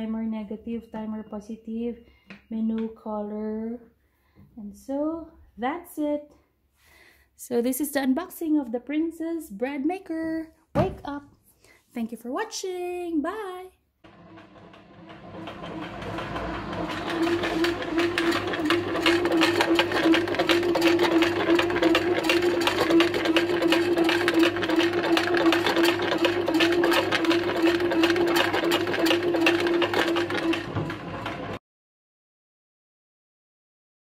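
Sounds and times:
bread maker motor humming: 0:14.0 - 0:31.6.

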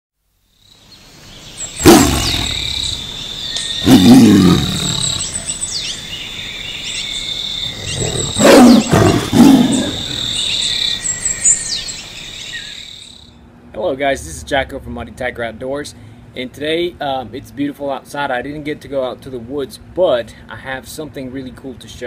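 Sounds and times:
insects chirping: 0:00.3 - 0:13.5
bird calls: 0:00.7 - 0:13.3
tiger roaring: 0:01.8 - 0:03.0, 0:03.8 - 0:05.6, 0:07.6 - 0:10.5.

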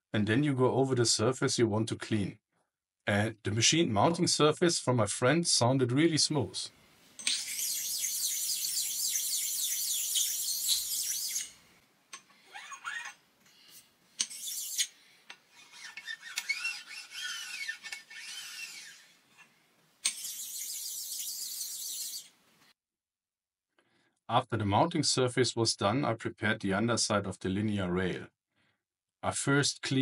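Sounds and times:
stone scraping on metal: 0:12.6 - 0:22.3.

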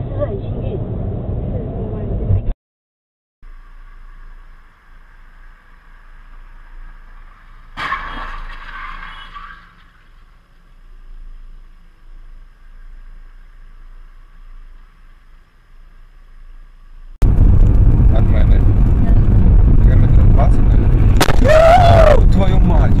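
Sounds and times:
car crash with ringing: 0:06.8 - 0:10.6
faint steady hum: 0:10.0 - 0:18.5.

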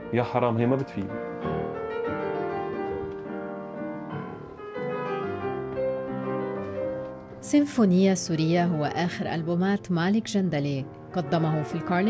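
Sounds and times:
slow classical solo piano: 0:00.0 - 0:08.3.

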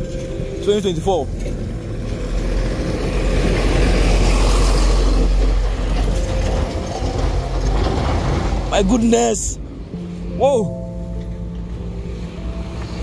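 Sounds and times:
dump truck diesel engine passing: 0:00.0 - 0:13.0.

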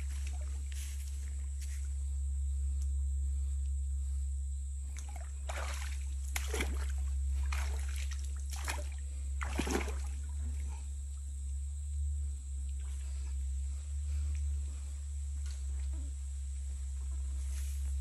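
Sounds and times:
splashing in shallow water: 0:04.9 - 0:10.7.

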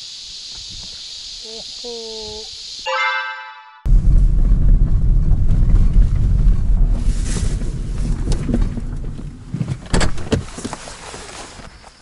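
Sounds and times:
car rumble inside cabin: 0:03.9 - 0:09.8.

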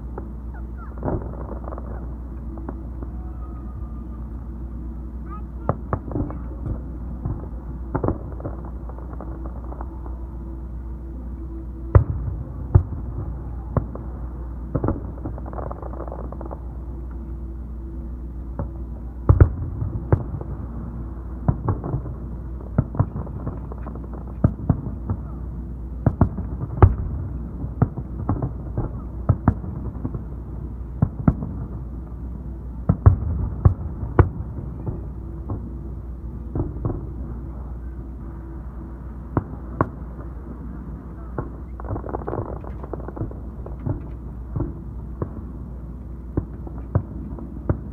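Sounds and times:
fireworks bursting: 0:00.0 - 0:10.5, 0:39.3 - 0:45.6
steady low rumble: 0:00.0 - 0:47.9.

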